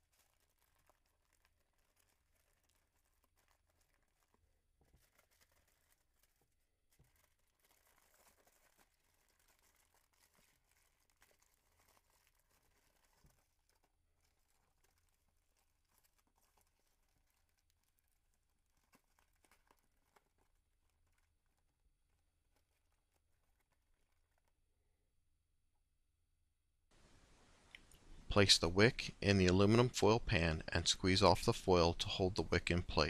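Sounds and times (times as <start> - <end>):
aluminum foil crinkling: 0.0 - 24.7.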